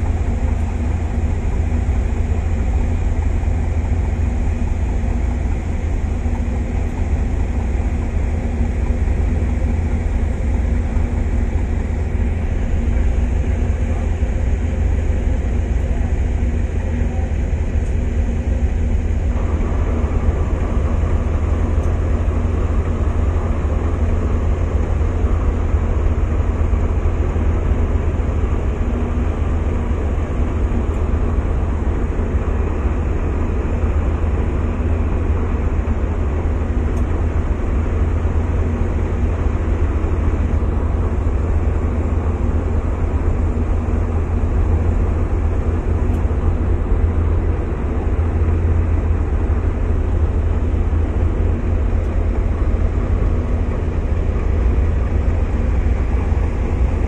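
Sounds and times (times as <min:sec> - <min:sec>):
ferry engine droning: 0:00.0 - 0:57.0.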